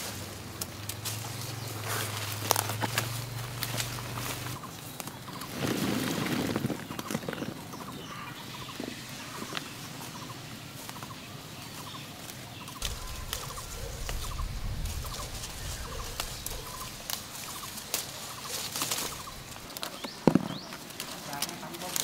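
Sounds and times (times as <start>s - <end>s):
poultry calling: 6.4s - 20.8s.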